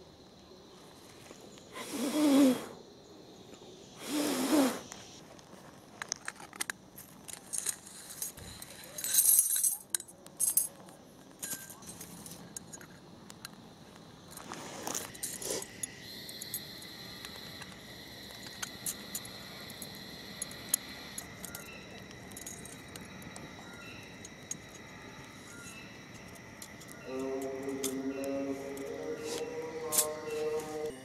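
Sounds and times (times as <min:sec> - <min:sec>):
crickets chirping: 0:00.0 - 0:31.0
wire grill clinking and rattling: 0:07.5 - 0:10.8.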